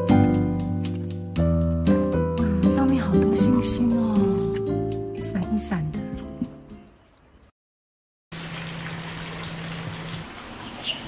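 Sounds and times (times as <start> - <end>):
soft guitar music: 0.0 - 6.9.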